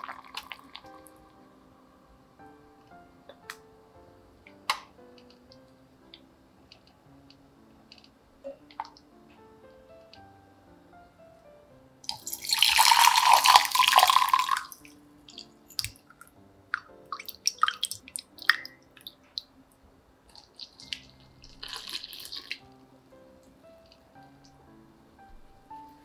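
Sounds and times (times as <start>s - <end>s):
water running: 0.0s - 1.2s, 12.1s - 19.5s, 20.3s - 22.7s
soft background music: 0.0s - 26.0s.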